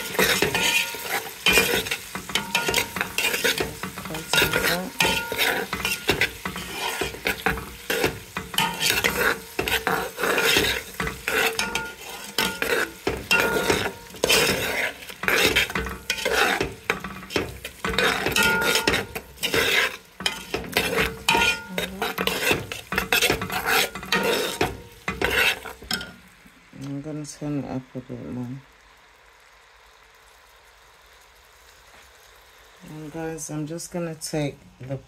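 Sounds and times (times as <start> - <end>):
metal clinking on pot: 0.0 - 26.2
metal spoon scraping a pot: 0.0 - 26.2
vegetables sizzling in oil: 0.0 - 35.0.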